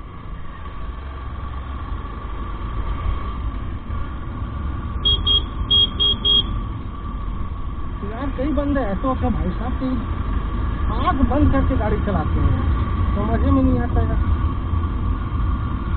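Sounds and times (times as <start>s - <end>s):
motorcycle horn short beeps: 5.0s - 6.5s.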